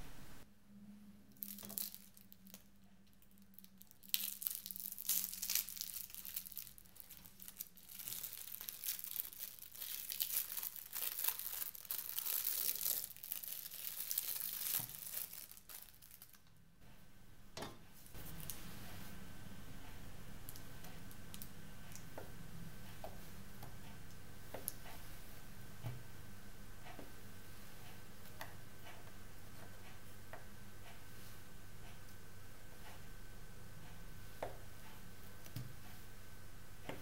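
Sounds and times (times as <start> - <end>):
wrapper crinkling and tearing: 1.4 - 16.5.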